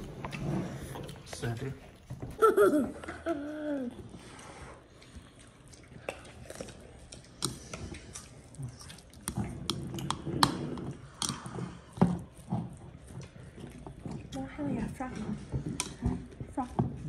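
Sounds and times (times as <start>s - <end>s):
close-up chewing with smacks: 3.8s - 17.0s.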